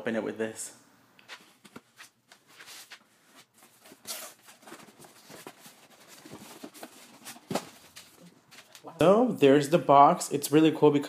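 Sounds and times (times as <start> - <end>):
cardboard scraping and rustling: 1.4 - 8.8.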